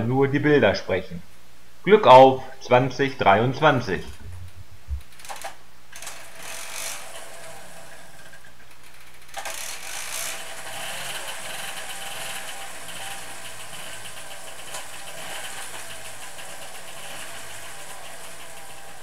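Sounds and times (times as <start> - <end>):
small two-stroke engine running: 6.0 - 19.0.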